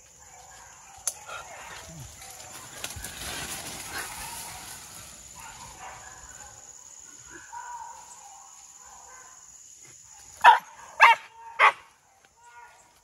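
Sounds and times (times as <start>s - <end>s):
dog barking: 5.4s - 6.6s, 7.4s - 9.5s, 10.4s - 12.9s.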